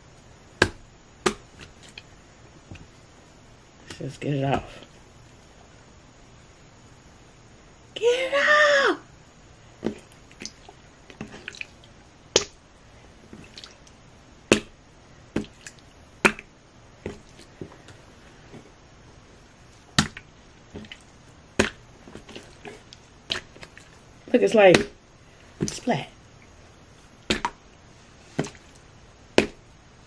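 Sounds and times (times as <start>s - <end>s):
slime squishing with wet pops: 9.8s - 12.6s, 13.3s - 18.6s, 19.7s - 24.0s, 24.7s - 25.0s, 27.2s - 29.7s.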